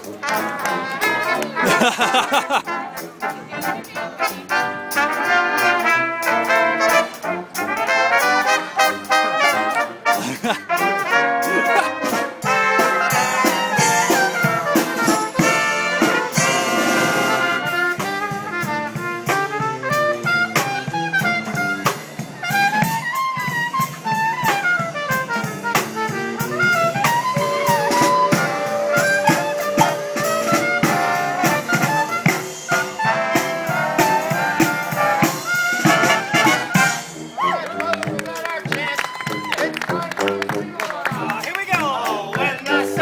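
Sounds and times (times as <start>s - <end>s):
trumpets and trombones melody: 0.0s - 43.0s
snare and bass drum beats: 10.2s - 37.3s
sousaphone: 27.0s - 31.4s.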